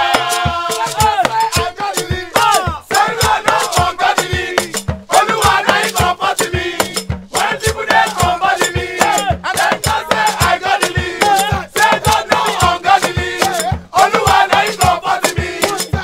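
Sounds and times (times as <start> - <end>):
hand drums beating: 0.0 - 16.0
men singing together: 0.0 - 16.0.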